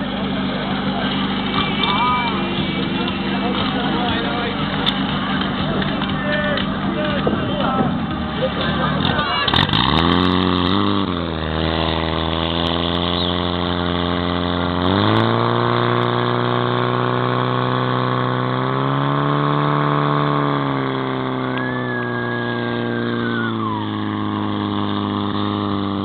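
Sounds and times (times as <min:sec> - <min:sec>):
pump engine revving: 0:00.0 - 0:26.0
high tone sliding down: 0:21.4 - 0:24.6.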